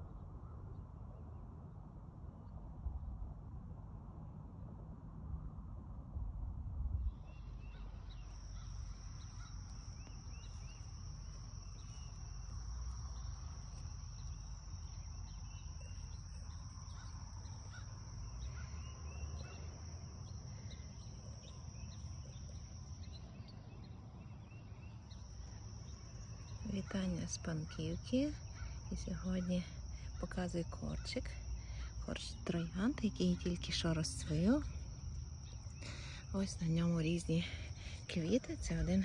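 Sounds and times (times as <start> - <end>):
low rumble: 0.0 - 19.5
bird chirps: 7.2 - 26.7
insects trilling: 7.3 - 39.0.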